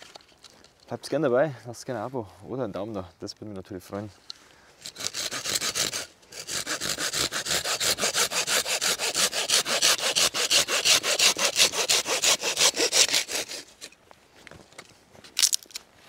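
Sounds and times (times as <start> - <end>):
hand saw cutting wood: 4.8 - 13.9.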